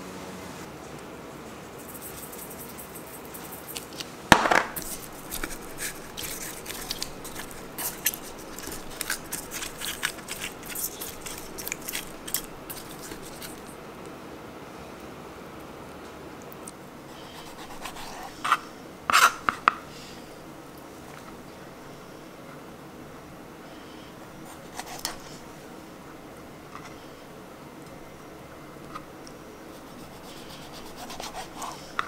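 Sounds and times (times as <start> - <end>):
hands rubbing meat with salt: 1.7 - 4.1, 4.8 - 13.7, 29.6 - 32.0.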